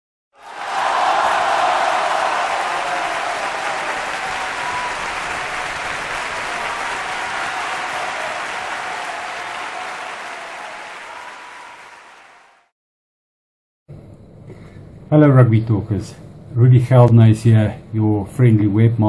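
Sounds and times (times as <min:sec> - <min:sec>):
crowd applause: 0:00.4 - 0:12.7.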